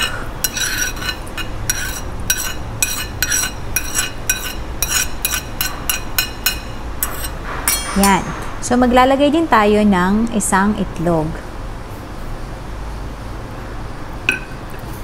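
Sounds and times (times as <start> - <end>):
metal spoon clinking on dishes: 0.0 - 8.6.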